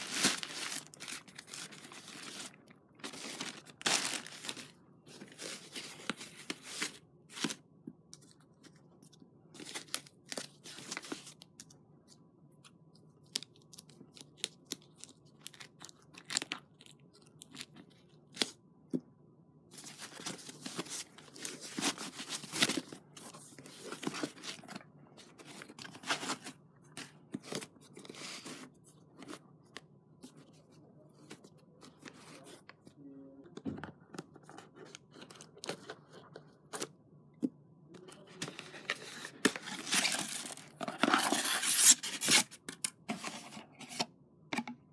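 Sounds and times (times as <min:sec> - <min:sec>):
plastic mailer bag rustling: 0:00.0 - 0:07.5.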